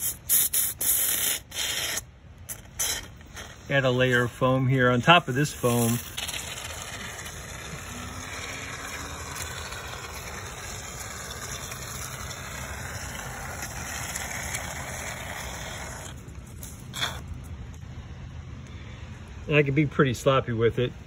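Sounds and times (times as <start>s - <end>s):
spray foam can hissing: 0.0s - 4.2s, 5.2s - 17.2s.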